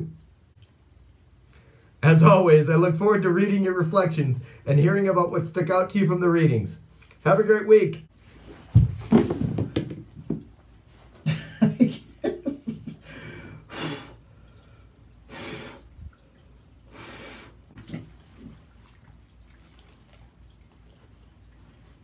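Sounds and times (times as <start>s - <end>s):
splashing in a bathtub: 8.4s - 10.6s, 13.3s - 22.0s.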